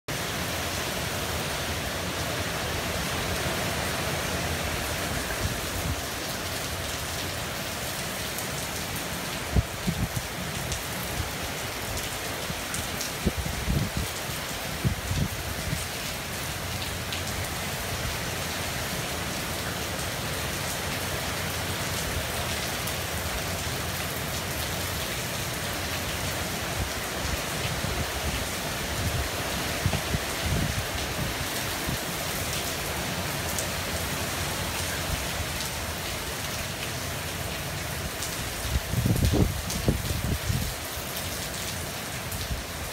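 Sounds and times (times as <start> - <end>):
heavy rain pouring: 0.1 - 42.9
low rumbling wind gusts: 9.4 - 16.0, 27.7 - 32.2, 38.1 - 40.8.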